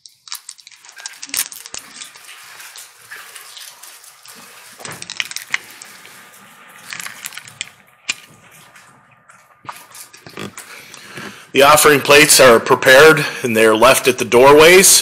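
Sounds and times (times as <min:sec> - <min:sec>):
small cups clicking and rustling: 0:00.0 - 0:08.8, 0:09.6 - 0:11.4.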